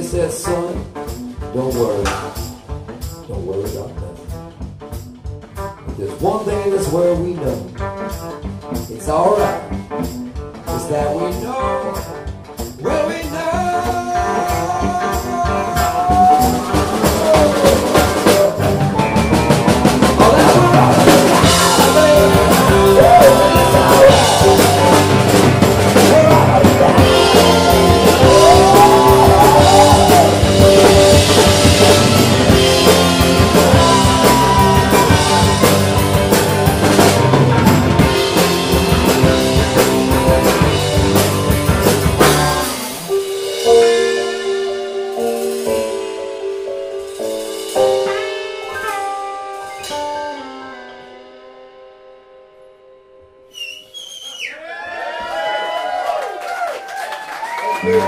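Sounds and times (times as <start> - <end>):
drum kit: 0.0 - 51.5
electric bass: 0.0 - 53.5
electric guitar: 4.0 - 53.5
stage piano: 5.9 - 58.0
person singing: 12.8 - 19.3, 20.0 - 40.8, 57.7 - 58.0.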